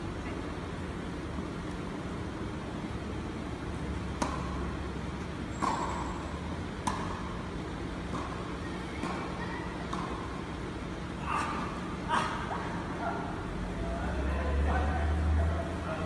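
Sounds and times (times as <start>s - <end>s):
steady low hum: 0.0s - 16.0s
tennis balls struck by rackets: 3.9s - 11.8s.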